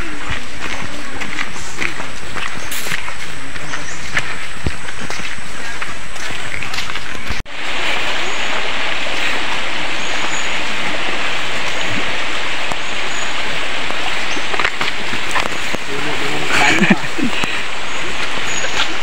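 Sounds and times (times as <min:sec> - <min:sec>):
river rushing over stones: 0:07.5 - 0:19.0.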